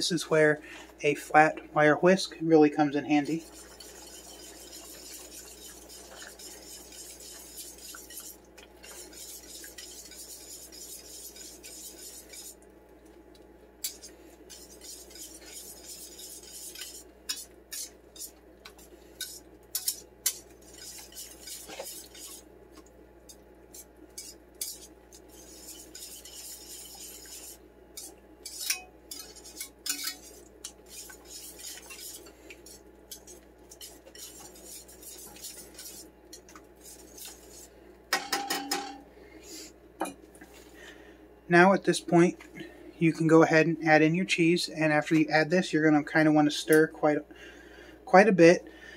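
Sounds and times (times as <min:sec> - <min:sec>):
whisk scraping in a pan: 0:02.8 - 0:12.6, 0:13.8 - 0:37.8
whisk clinking against a pan: 0:03.2 - 0:12.6, 0:13.8 - 0:22.4, 0:23.3 - 0:39.0.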